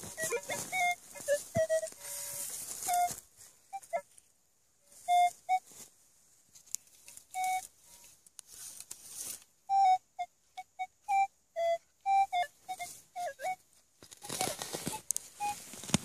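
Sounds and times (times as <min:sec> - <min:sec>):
metal detector beeping: 0:00.0 - 0:03.2, 0:07.3 - 0:08.2, 0:09.7 - 0:13.6
rustling soil and leaves: 0:00.0 - 0:09.8, 0:12.0 - 0:16.0.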